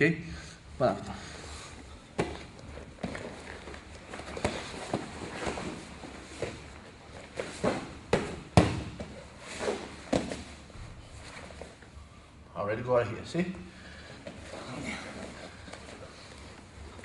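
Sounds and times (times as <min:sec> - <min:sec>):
bodies slapping on mat: 0:02.1 - 0:10.6.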